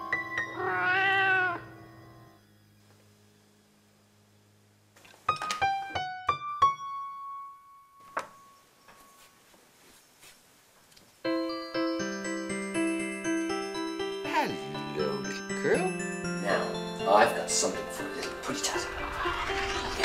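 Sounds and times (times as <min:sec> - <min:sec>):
piano notes: 0:00.0 - 0:02.6, 0:05.2 - 0:09.2, 0:11.2 - 0:20.0
cat meowing: 0:00.6 - 0:01.7.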